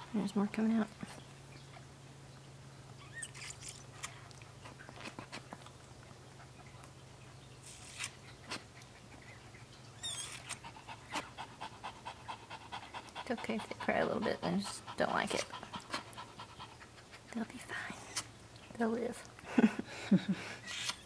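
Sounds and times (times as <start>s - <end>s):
steady low hum: 0.0s - 21.0s
puppy squealing: 3.0s - 3.6s, 10.0s - 10.5s.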